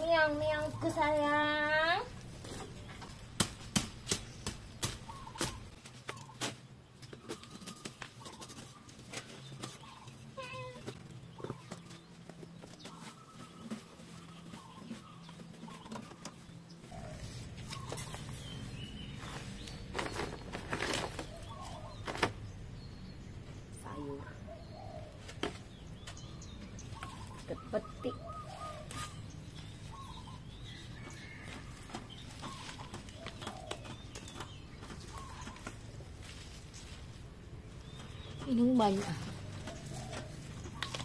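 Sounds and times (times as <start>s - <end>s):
grass rustling and snapping: 2.2s - 10.0s, 28.6s - 41.0s.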